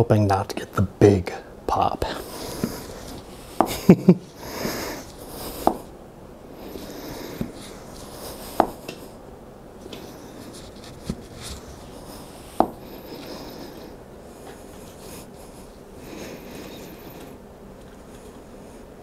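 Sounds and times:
floor pump hissing strokes: 2.0s - 5.9s, 6.5s - 9.2s, 9.8s - 17.4s.

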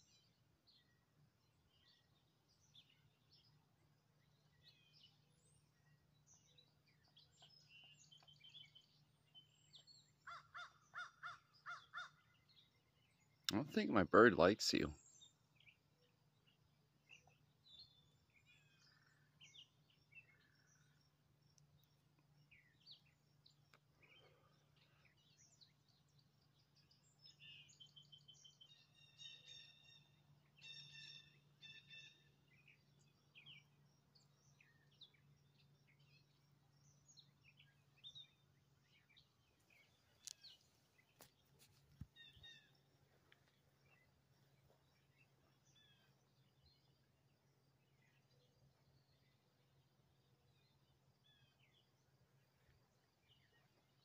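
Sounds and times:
faint low hum: 0.0s - 54.0s
birds chirping and calling: 4.3s - 21.0s, 22.5s - 46.9s.

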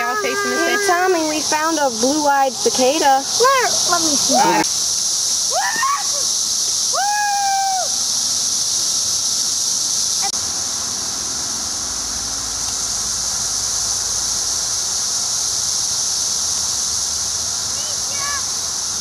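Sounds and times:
cicadas droning: 0.0s - 19.0s.

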